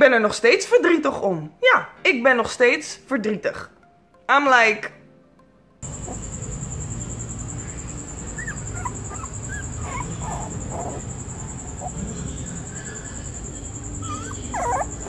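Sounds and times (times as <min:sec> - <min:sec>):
low background rumble: 0:05.8 - 0:15.0
puppy whimpering: 0:05.9 - 0:06.8, 0:07.9 - 0:15.0.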